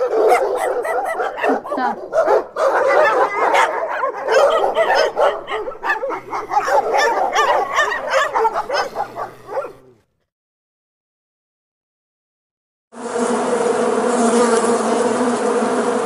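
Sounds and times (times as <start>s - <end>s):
dog barking and yipping: 0.0s - 10.0s.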